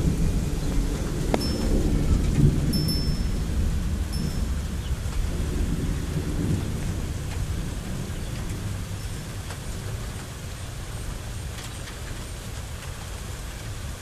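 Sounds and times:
low rumble of thunder: 0.0 - 14.0
steady rain: 0.0 - 14.0
metal wind chime tinging: 1.4 - 4.6.

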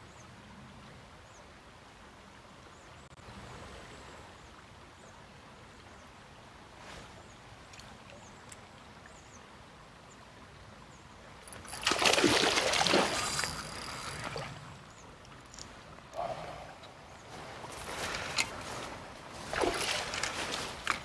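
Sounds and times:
faint water flow: 0.0 - 21.0
fish thrashing and splashing: 11.5 - 14.6, 19.4 - 21.0.

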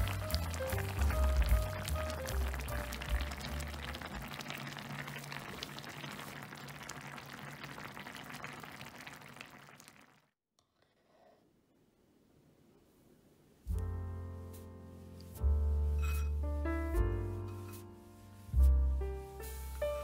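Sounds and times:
stew boiling with bursting bubbles: 0.0 - 10.4.

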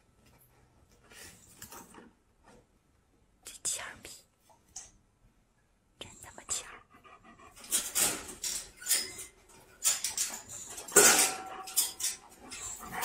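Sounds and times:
dog huffing and snapping: 7.5 - 13.0.

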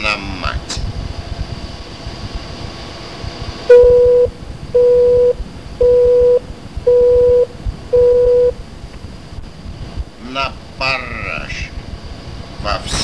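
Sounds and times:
telephone busy signal beeps: 3.7 - 8.6.

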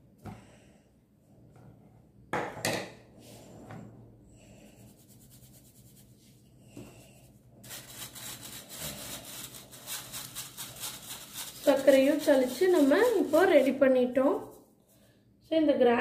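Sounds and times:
sugar scratching through sieve mesh: 4.7 - 6.4, 7.2 - 14.6.

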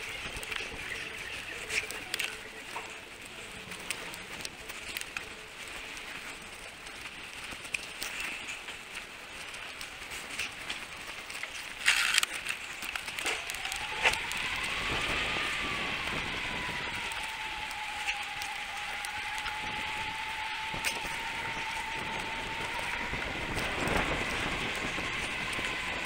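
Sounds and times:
bike rattling clicks: 0.0 - 15.6
tyres humming whine: 0.0 - 26.0
wind and road noise: 0.0 - 26.0.

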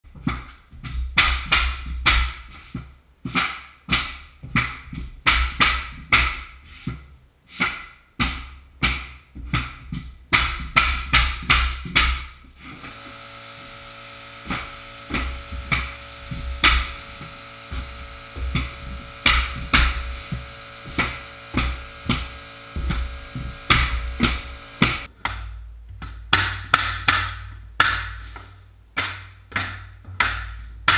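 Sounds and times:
flooring nailer knocks: 10.4 - 25.1
steady hum: 10.8 - 25.2.

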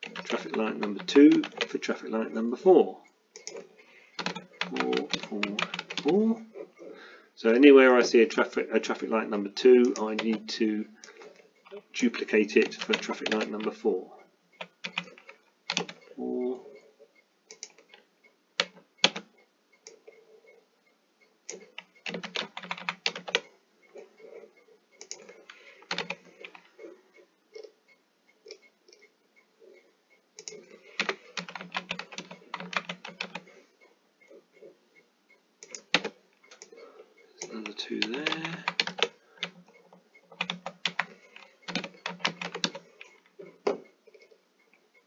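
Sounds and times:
computer keyboard typing: 0.0 - 2.0, 3.4 - 6.3, 9.8 - 13.8, 14.6 - 16.1, 18.6 - 19.3, 21.5 - 23.5, 25.0 - 26.7, 30.4 - 33.5, 35.6 - 36.8, 37.4 - 43.8.

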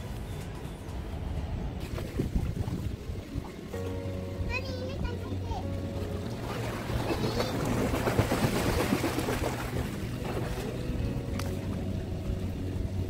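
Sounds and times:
water splashing from swimming: 1.8 - 13.0.

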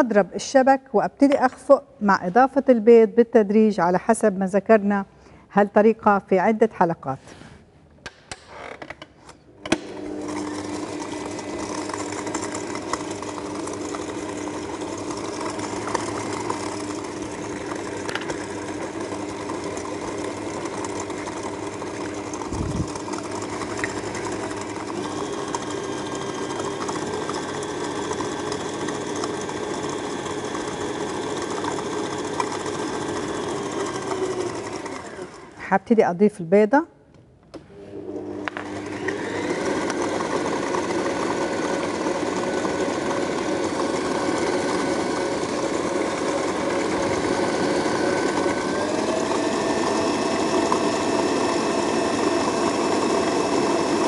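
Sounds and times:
stand mixer motor running: 9.6 - 35.6, 37.9 - 54.0
whisk beating in steel bowl: 10.2 - 35.4.

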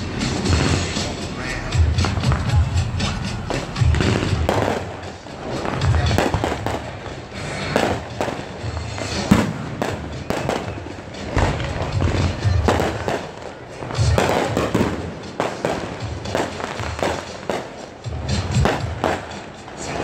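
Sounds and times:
deep firework booms: 0.0 - 6.9, 9.0 - 13.2
fireworks bangs and crackling: 0.0 - 20.0.

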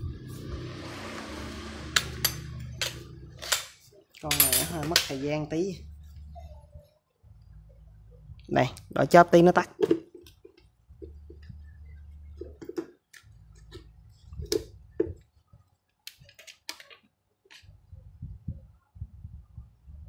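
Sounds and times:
low hum: 0.0 - 3.7, 4.4 - 8.9, 10.7 - 12.6.

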